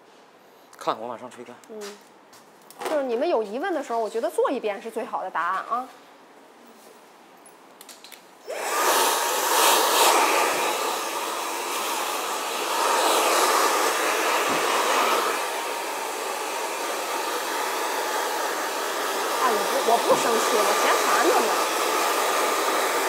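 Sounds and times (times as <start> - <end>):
hair dryer running: 8.4 - 23.0.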